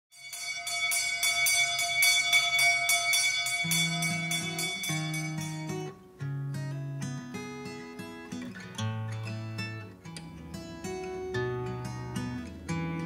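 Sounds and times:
high ringing guitar pattern: 0.1 - 13.0.

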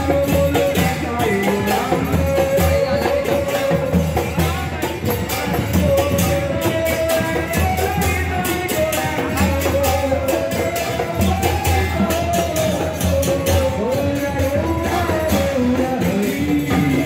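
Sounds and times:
drums: 0.0 - 17.0
hand cymbals struck in a beat: 0.0 - 17.0
person singing: 0.0 - 17.0.

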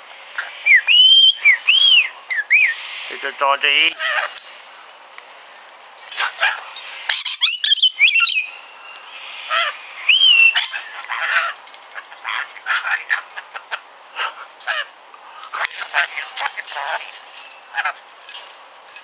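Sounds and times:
parrot chattering and squawking: 0.3 - 2.9, 3.9 - 4.6, 6.1 - 18.2
warbling whistles: 0.4 - 3.2, 7.1 - 11.0.

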